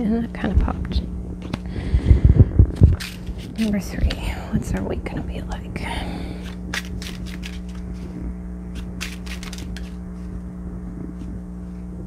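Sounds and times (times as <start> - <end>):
steady low hum: 0.0 - 12.0
playing cards being shuffled: 2.8 - 3.7, 6.4 - 10.4.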